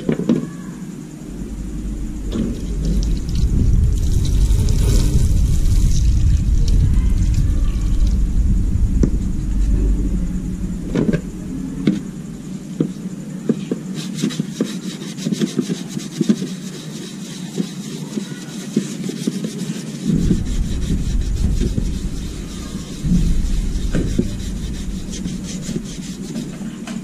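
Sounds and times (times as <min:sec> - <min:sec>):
low rumble: 0:00.9 - 0:13.5, 0:20.0 - 0:27.0.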